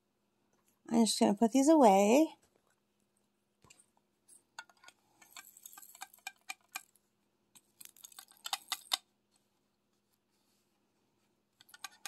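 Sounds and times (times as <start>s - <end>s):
small plastic pieces clicking: 4.6s - 7.0s, 7.6s - 9.1s, 11.6s - 12.0s.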